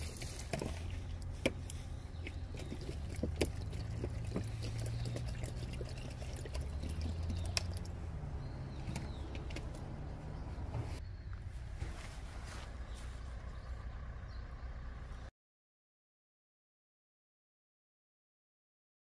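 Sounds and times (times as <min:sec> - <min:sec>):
low steady rumble: 0:00.0 - 0:15.3
cat chewing and licking: 0:02.5 - 0:07.9.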